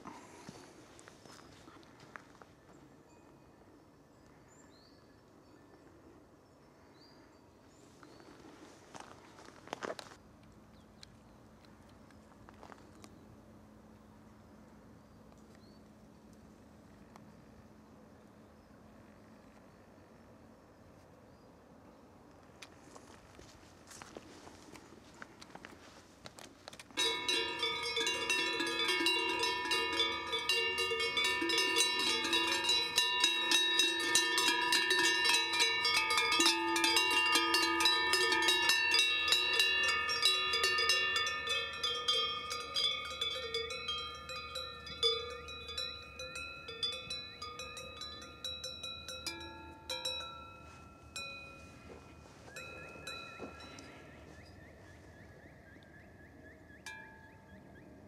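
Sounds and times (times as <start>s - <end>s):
cowbells ringing: 27.0s - 54.2s, 56.8s - 57.4s.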